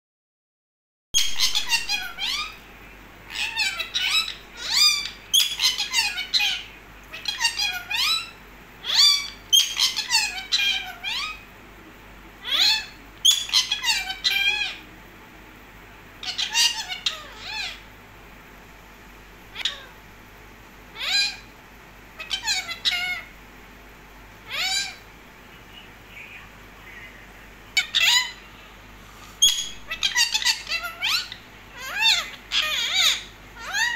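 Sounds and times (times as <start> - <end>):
parakeets shrill calls: 1.2 - 11.5, 12.4 - 14.9, 16.2 - 17.9, 19.5 - 20.0, 20.9 - 21.6, 22.2 - 23.4, 24.4 - 28.6, 29.3 - 33.9.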